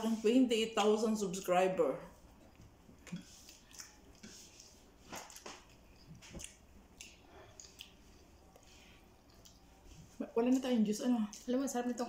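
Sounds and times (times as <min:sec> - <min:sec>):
faint chewing: 0:02.1 - 0:12.0
small clicks and smacks: 0:02.5 - 0:11.6.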